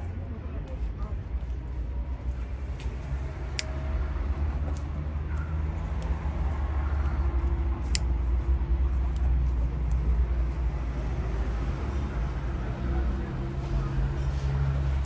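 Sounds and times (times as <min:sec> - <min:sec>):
street traffic rumble: 0:00.0 - 0:15.0
sharp ticks: 0:07.4 - 0:08.2.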